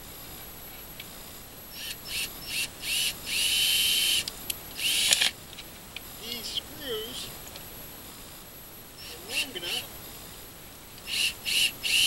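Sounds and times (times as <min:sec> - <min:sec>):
cordless drill driving screws: 0:04.8 - 0:05.3.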